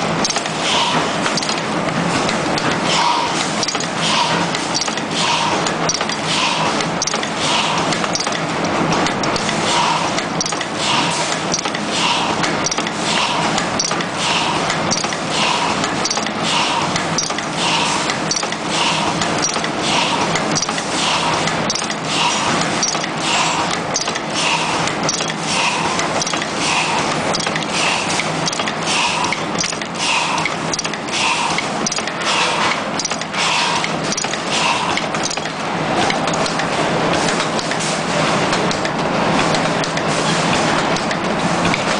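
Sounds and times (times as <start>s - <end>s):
crimping machine clicking: 1.2s - 6.2s, 15.8s - 17.5s, 19.2s - 25.4s, 26.0s - 37.8s.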